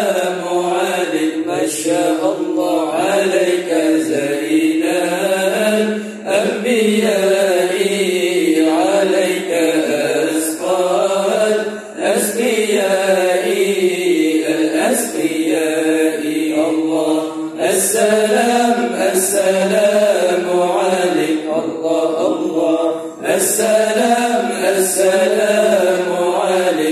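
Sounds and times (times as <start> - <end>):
men chanting into microphones: 0.0 - 26.9.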